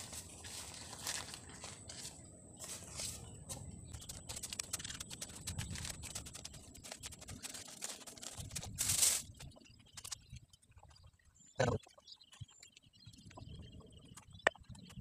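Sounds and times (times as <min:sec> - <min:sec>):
plastic bags and soil rustling: 0:00.0 - 0:10.2.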